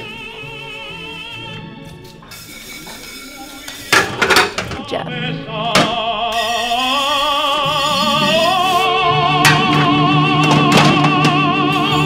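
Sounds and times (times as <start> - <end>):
voice singing with vibrato: 4.7 - 12.0.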